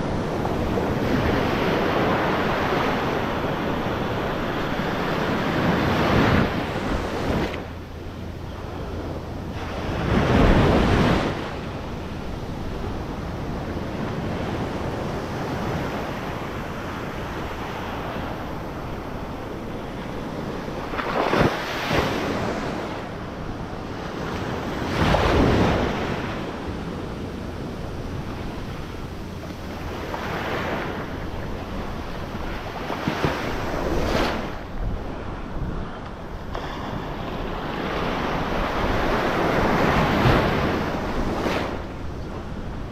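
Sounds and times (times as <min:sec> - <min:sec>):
wind on microphone: 0:00.0 - 0:42.9
surf breaking on beach: 0:08.8 - 0:23.2, 0:23.9 - 0:26.9.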